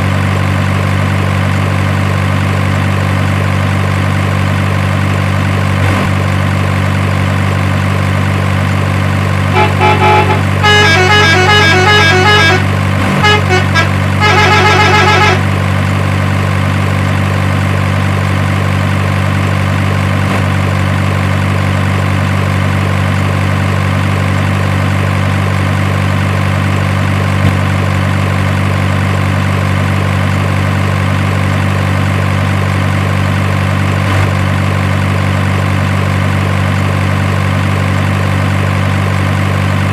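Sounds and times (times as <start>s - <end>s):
truck engine idling: 0.0s - 39.9s
short horn toots: 9.5s - 15.5s.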